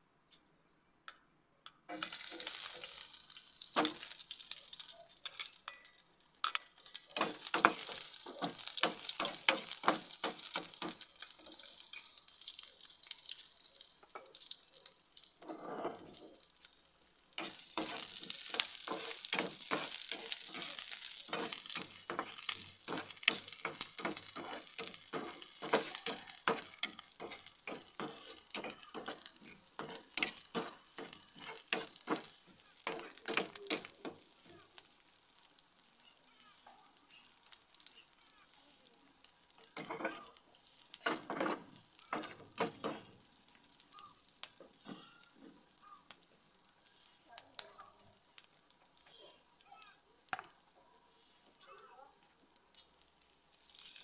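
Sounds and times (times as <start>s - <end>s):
onion sizzling in hot oil: 1.9s - 54.0s.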